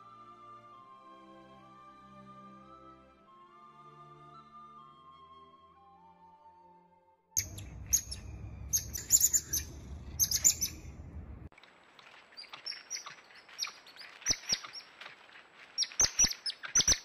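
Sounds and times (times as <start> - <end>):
high-pitched chirping calls: 7.4 - 10.9, 15.8 - 17.0
low rumble: 7.4 - 11.5.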